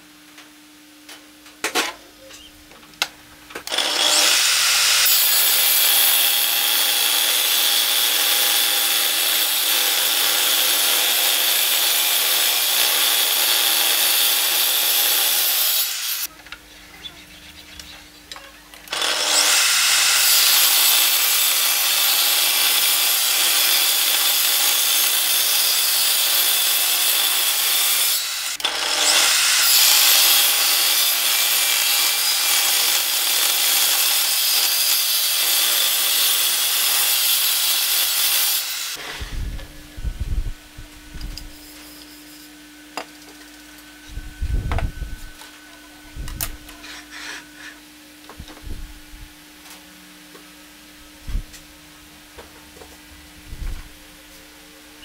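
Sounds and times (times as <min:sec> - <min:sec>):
table saw cutting wood: 0:03.6 - 0:16.3, 0:18.9 - 0:39.4.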